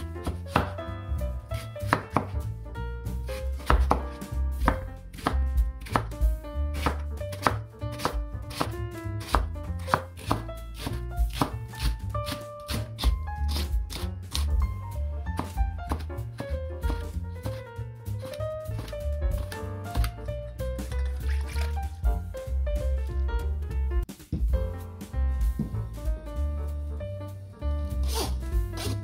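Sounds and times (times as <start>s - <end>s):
knife chopping on wooden board: 0.0s - 0.8s, 1.6s - 2.5s, 3.3s - 14.5s, 15.3s - 20.2s, 28.0s - 29.0s.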